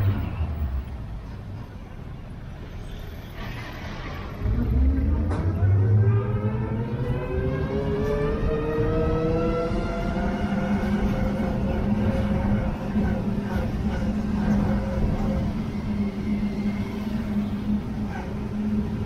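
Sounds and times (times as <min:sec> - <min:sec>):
road noise: 0:00.0 - 0:19.0
vehicle engine humming: 0:04.3 - 0:19.0.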